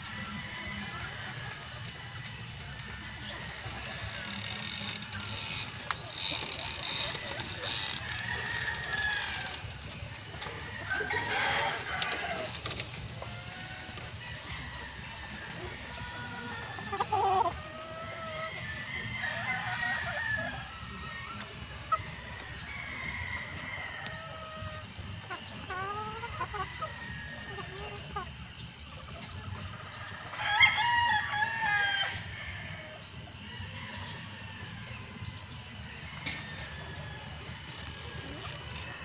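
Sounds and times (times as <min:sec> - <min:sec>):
hens clucking: 0:00.0 - 0:39.0
rooster crowing: 0:06.2 - 0:09.7, 0:10.7 - 0:12.6, 0:18.4 - 0:20.7.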